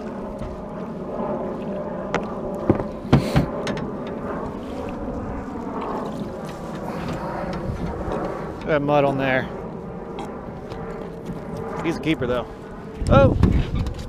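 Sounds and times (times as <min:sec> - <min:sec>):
faint hum: 0:00.0 - 0:14.0
wind: 0:00.0 - 0:14.0
water noise: 0:01.4 - 0:11.8.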